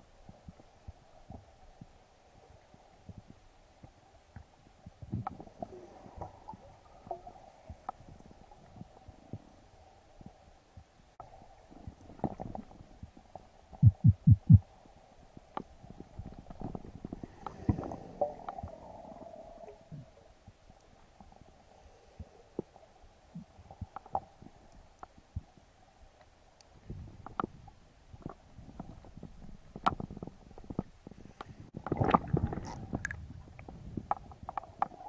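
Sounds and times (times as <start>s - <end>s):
muffled underwater rumble: 0.0s - 25.7s, 26.8s - 35.0s
faint steady hum: 0.0s - 35.0s
heavy low thumps: 13.8s - 14.6s.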